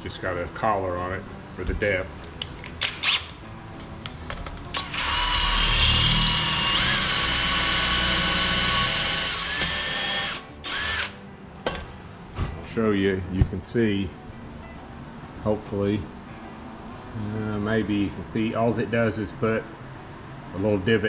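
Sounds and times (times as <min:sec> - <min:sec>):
cordless drill whining: 0:04.8 - 0:11.2.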